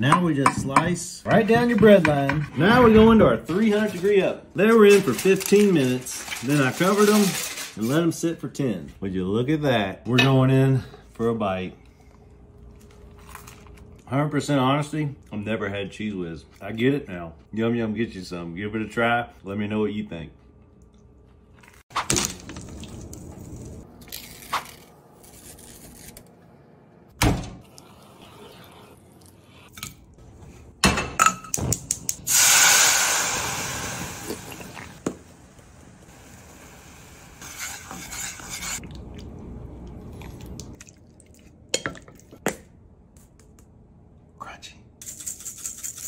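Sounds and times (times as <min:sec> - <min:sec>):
sauce sizzling in hot pan: 0:32.3 - 0:34.6.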